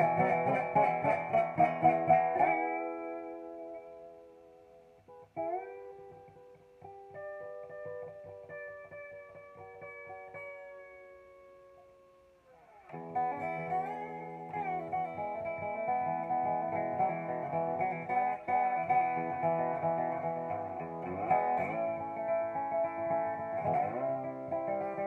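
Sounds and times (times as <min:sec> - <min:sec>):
resonator guitar slide playing: 0:00.0 - 0:04.2, 0:12.6 - 0:25.0.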